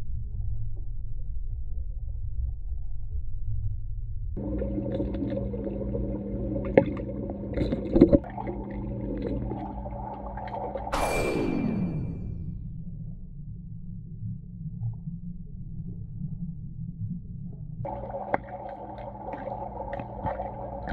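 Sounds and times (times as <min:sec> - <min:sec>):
underwater rumble: 0:00.0 - 0:20.9
steady hum: 0:04.4 - 0:14.7
falling sweep: 0:11.0 - 0:12.7.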